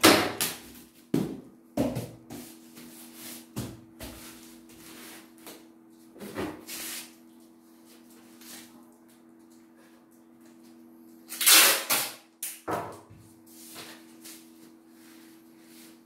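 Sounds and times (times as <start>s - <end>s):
packing tape pulled off roll: 11.3s - 12.6s.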